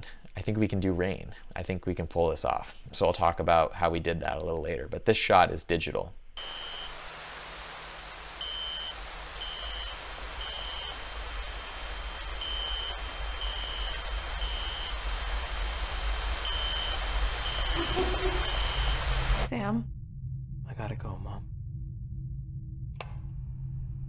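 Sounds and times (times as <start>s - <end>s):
smoke alarm beeping: 6.4s - 7.0s, 8.4s - 19.5s
steady hiss: 6.4s - 19.5s
low hum: 6.4s - 24.0s.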